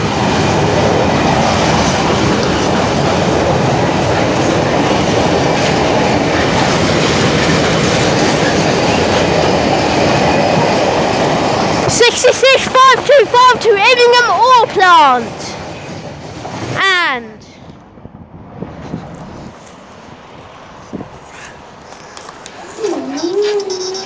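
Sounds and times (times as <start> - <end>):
train wheels clattering on rails: 0.0 - 16.8.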